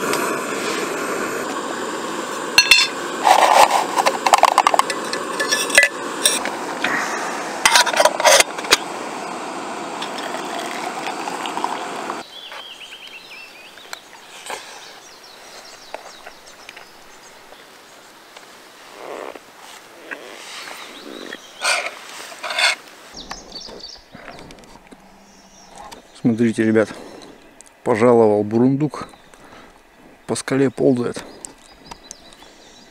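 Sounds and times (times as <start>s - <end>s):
gas stove burner hiss: 0.0s - 12.3s
metal cup clinks: 2.6s - 3.0s, 4.8s - 6.5s.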